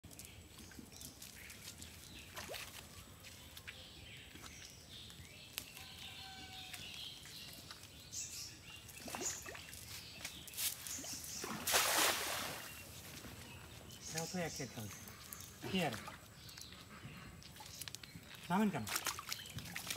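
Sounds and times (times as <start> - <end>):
bird calls: 0.3 - 19.9
net splashing into water: 11.0 - 12.8.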